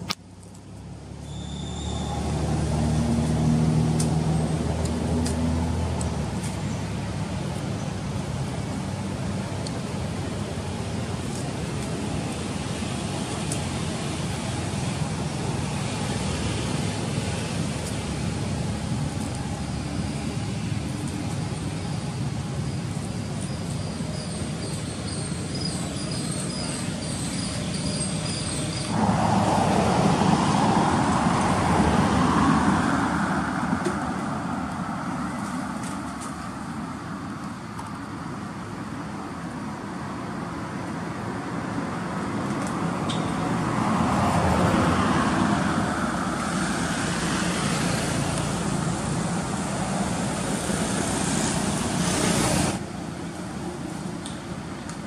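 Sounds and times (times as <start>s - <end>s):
road traffic: 0.0s - 55.0s.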